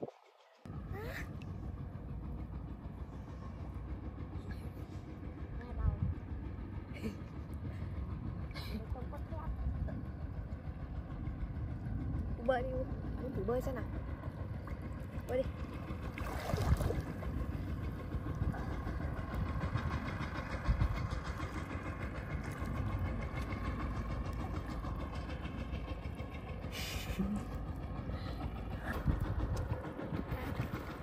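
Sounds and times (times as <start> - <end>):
wind buffeting microphone: 5.4 - 6.5, 7.5 - 26.7, 27.6 - 31.0
water splashing: 16.1 - 17.4.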